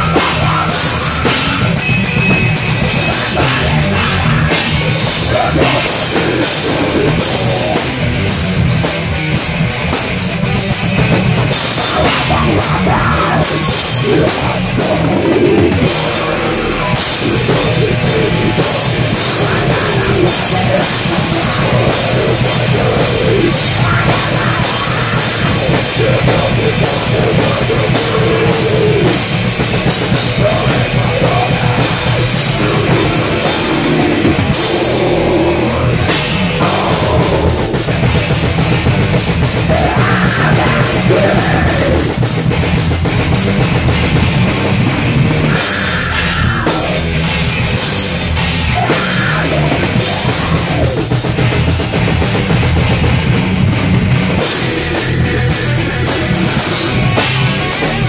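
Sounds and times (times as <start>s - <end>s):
person singing into a microphone: 0.0s - 2.2s, 2.8s - 7.9s, 11.8s - 36.0s, 36.6s - 38.1s, 39.6s - 42.4s, 45.5s - 47.1s, 48.7s - 51.5s
drum kit and cymbals: 0.0s - 58.0s
heavy metal band playing: 0.0s - 58.0s.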